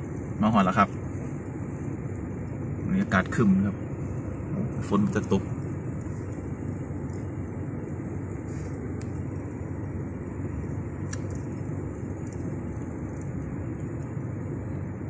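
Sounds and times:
car engine and tyre rumble: 0.0s - 15.0s.

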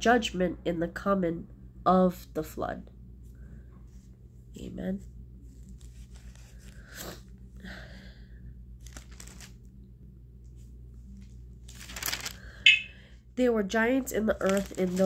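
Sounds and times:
low steady hum: 0.0s - 15.0s
paper pages rustling: 5.4s - 6.8s, 8.8s - 9.6s, 10.6s - 12.6s, 14.2s - 15.0s.

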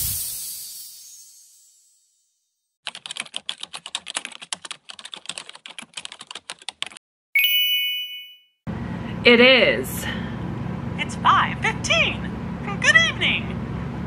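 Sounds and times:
bright ding: 7.4s - 8.5s.

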